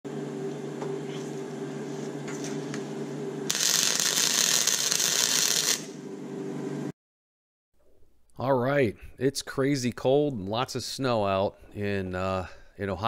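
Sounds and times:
welder humming: 0:00.1 - 0:06.9
welding arc hissing and crackling: 0:03.5 - 0:06.0.

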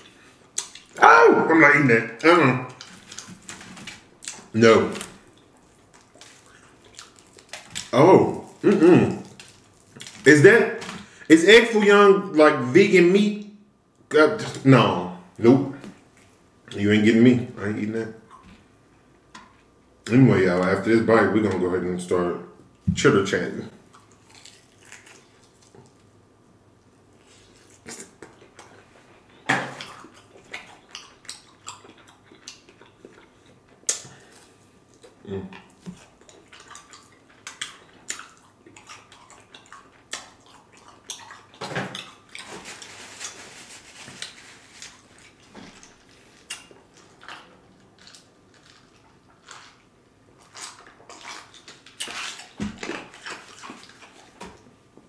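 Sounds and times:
person chewing crispy food: 0:02.7 - 0:10.3, 0:23.8 - 0:26.2, 0:27.1 - 0:54.7.

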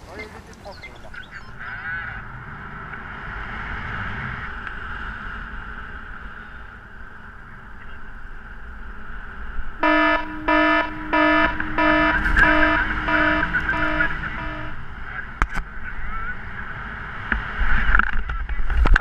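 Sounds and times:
variometer beeping: 0:09.8 - 0:14.9.

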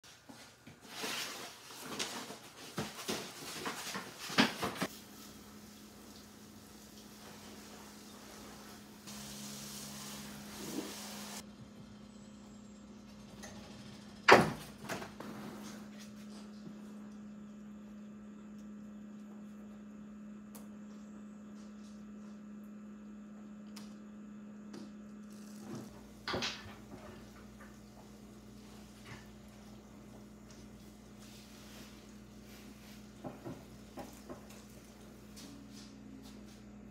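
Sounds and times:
steady low hum: 0:04.8 - 0:36.9.

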